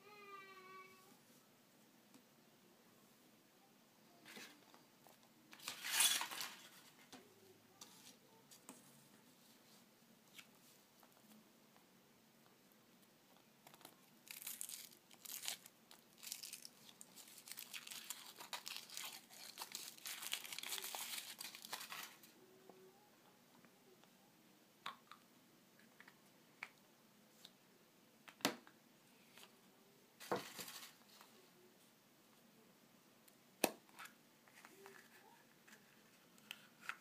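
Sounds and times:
foil wrapper crinkling and tearing: 0:05.6 - 0:06.6, 0:13.7 - 0:22.3.

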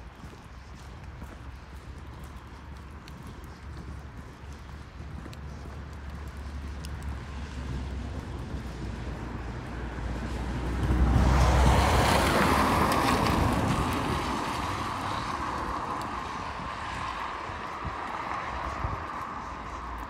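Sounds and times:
wind rumble on microphone: 0:00.0 - 0:20.0
tyres hissing on wet road: 0:06.4 - 0:20.0.

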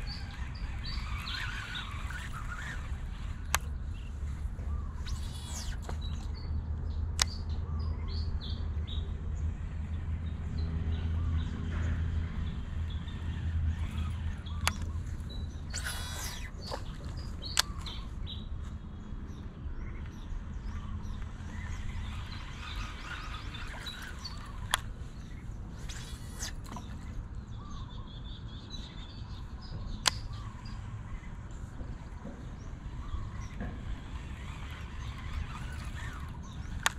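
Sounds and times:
small birds chirping: 0:00.0 - 0:36.9
sharp clicks: 0:03.4 - 0:03.8, 0:13.8 - 0:18.0, 0:29.9 - 0:30.4, 0:33.6 - 0:36.9
sharp click: 0:07.2 - 0:07.4, 0:14.6 - 0:18.0, 0:30.0 - 0:30.4.

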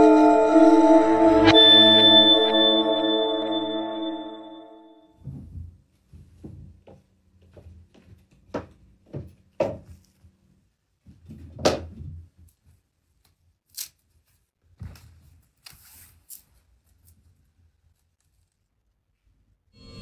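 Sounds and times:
footsteps on wooden floor: 0:05.2 - 0:09.9.

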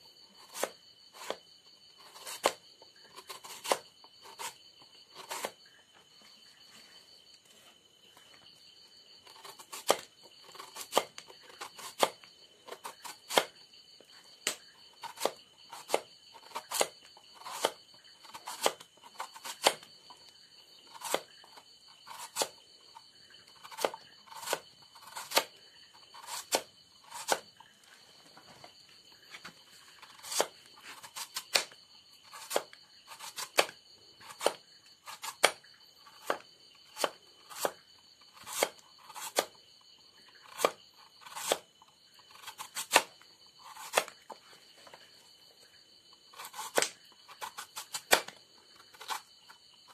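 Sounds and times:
knife slicing bamboo shoot: 0:00.3 - 0:01.4, 0:02.0 - 0:05.6, 0:09.3 - 0:13.6, 0:14.4 - 0:27.5, 0:29.9 - 0:39.6, 0:40.3 - 0:44.4, 0:46.3 - 0:49.9.

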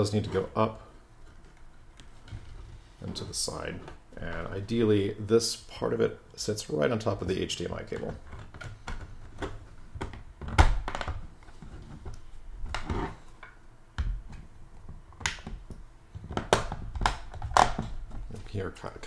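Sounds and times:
plastic case clicking and snapping: 0:15.2 - 0:18.0.

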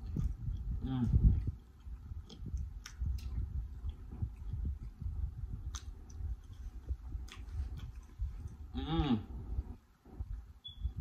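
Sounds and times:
mouth smacking clicks: 0:00.0 - 0:04.7, 0:05.6 - 0:06.5
person chewing wetly: 0:00.0 - 0:08.8.

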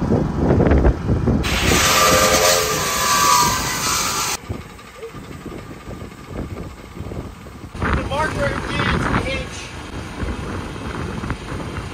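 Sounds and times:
chop saw cutting steel: 0:01.4 - 0:04.4.

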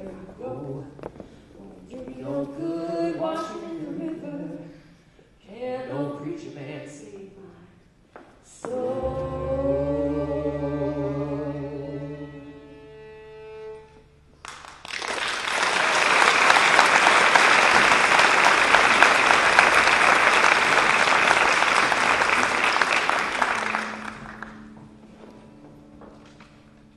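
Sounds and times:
choir holding a chord: 0:08.6 - 0:12.7
audience applauding: 0:14.4 - 0:24.7.

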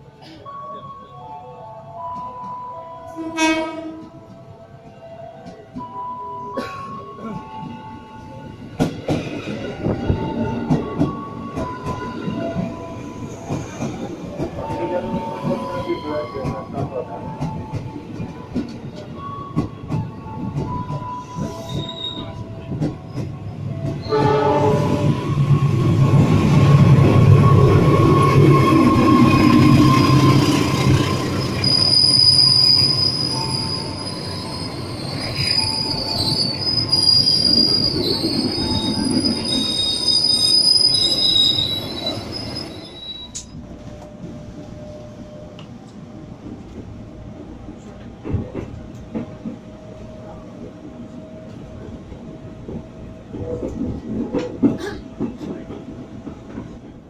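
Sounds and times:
train rolling: 0:06.9 - 0:57.0
brake and wheel squeal: 0:31.3 - 0:43.6.

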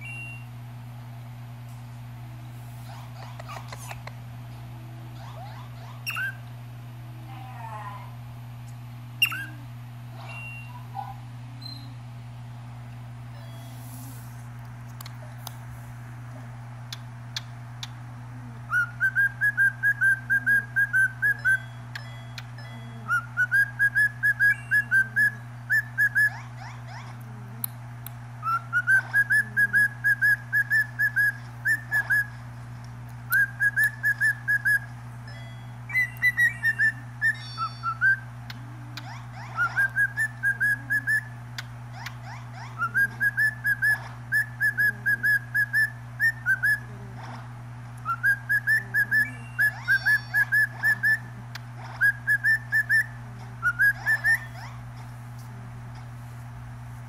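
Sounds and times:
steady low hum: 0:00.0 - 0:57.0
cockatiel whistling: 0:06.0 - 0:06.4, 0:09.2 - 0:09.6, 0:18.7 - 0:21.7, 0:23.1 - 0:26.4, 0:28.4 - 0:32.4, 0:33.3 - 0:34.9, 0:35.9 - 0:38.2, 0:39.0 - 0:41.4, 0:42.0 - 0:46.9, 0:48.0 - 0:51.3, 0:52.0 - 0:54.8.

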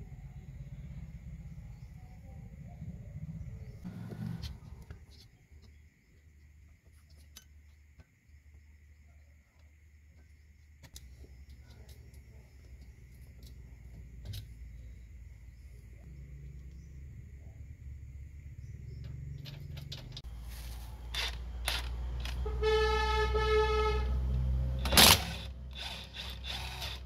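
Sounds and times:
impact wrench burst: 0:24.8 - 0:27.0.

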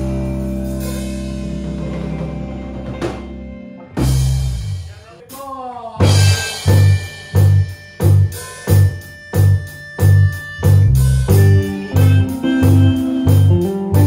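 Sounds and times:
electric guitars: 0:00.0 - 0:04.9, 0:06.0 - 0:14.0
bass guitar: 0:00.0 - 0:14.0
heavy low beat: 0:00.0 - 0:14.0
heavy drum hit: 0:06.0 - 0:08.3
bending guitar glide: 0:09.6 - 0:14.0.

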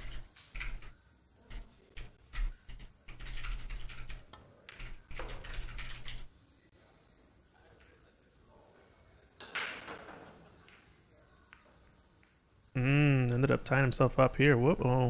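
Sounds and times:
typing on computer keyboard: 0:00.0 - 0:06.3.

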